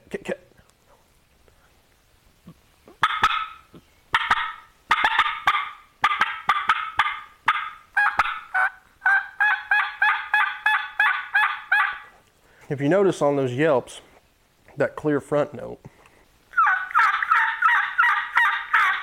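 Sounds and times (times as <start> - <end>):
turkey call yelps: 3.0 - 12.2, 16.5 - 19.0.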